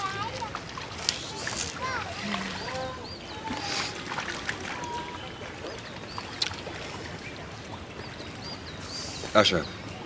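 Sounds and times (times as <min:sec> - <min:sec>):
water splashing and trickling: 0:00.0 - 0:10.0
small birds chirping: 0:05.1 - 0:10.0.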